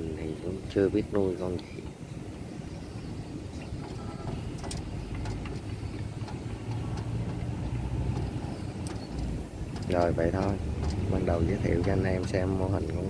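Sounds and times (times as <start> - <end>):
low outdoor rumble: 0.0 - 13.0
faint clicks: 3.6 - 13.0.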